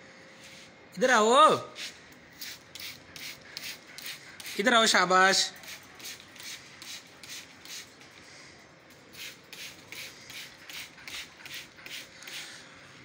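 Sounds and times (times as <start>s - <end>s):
water sprayer spritzing: 1.7s - 8.2s, 9.0s - 12.6s.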